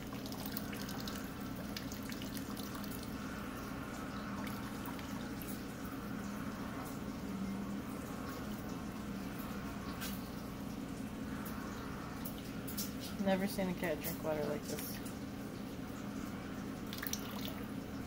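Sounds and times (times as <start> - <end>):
cat drinking water: 0.0 - 10.1, 16.1 - 18.0
water trickling into a bowl: 0.0 - 18.0.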